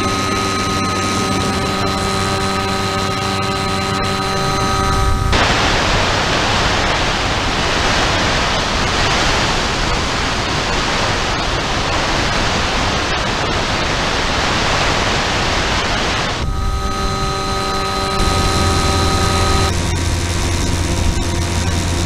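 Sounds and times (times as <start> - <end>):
motor whine: 0.0 - 6.8, 16.2 - 22.0.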